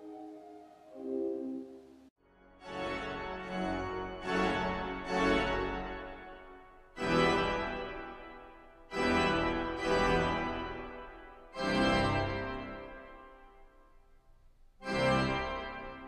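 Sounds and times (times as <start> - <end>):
pipe organ chords: 2.6 - 13.7, 14.8 - 16.0.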